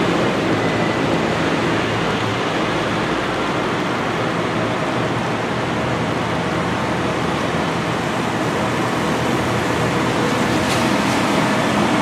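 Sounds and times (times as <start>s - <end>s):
hiss of wet road and rain: 0.0s - 12.0s
tractor diesel engines running: 0.0s - 12.0s.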